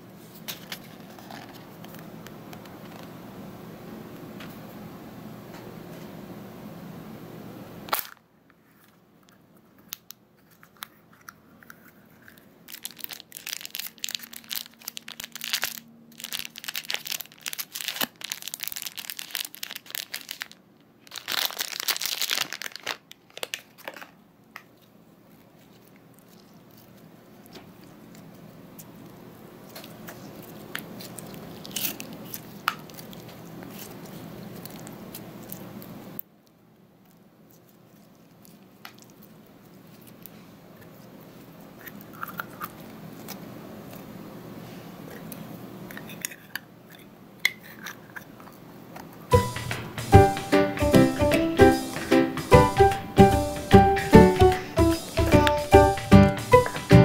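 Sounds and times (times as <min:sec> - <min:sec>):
plastic film crinkling and tearing: 0:00.5 - 0:02.1, 0:12.7 - 0:35.9
slime squishing: 0:24.6 - 0:35.9.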